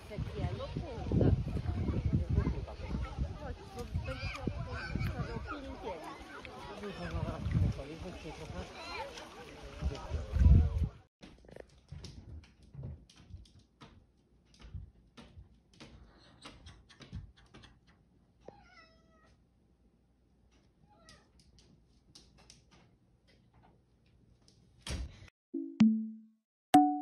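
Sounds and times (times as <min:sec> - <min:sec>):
cat meowing: 0:18.4 - 0:19.4.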